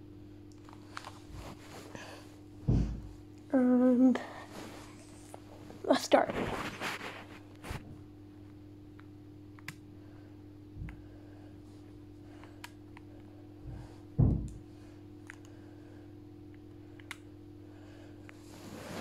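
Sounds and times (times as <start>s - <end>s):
steady low hum: 0.0s - 19.0s
dull thumps: 2.6s - 3.3s, 13.6s - 14.6s.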